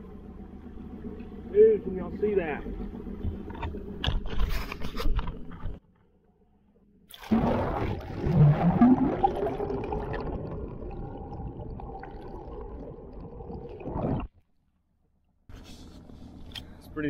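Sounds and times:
watery rumble: 0:00.0 - 0:14.5
muffled underwater rush and gurgling: 0:07.2 - 0:14.3.

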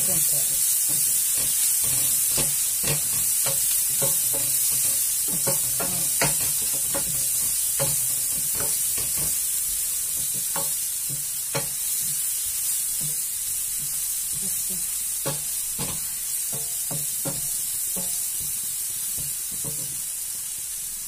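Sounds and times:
leeks sizzling in oil: 0:00.0 - 0:21.0.

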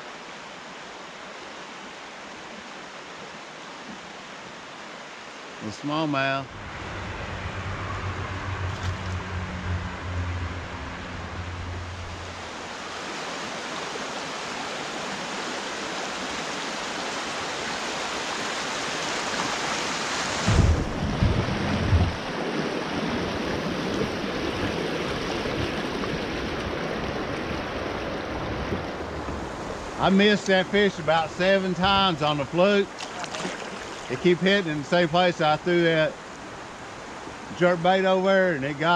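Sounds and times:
river water rushing: 0:00.0 - 0:38.9
low thumps: 0:06.5 - 0:12.4, 0:20.4 - 0:22.2.

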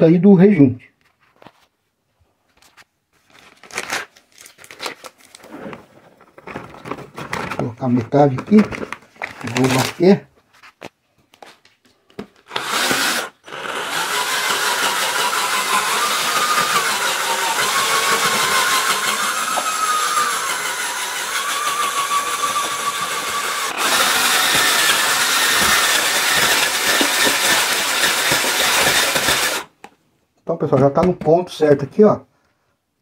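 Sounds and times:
electric drill mixing paint: 0:12.4 - 0:29.8.

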